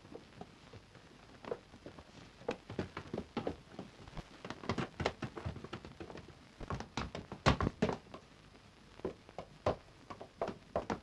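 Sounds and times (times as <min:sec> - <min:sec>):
footsteps on wooden boards: 0:01.4 - 0:08.2, 0:09.0 - 0:11.0.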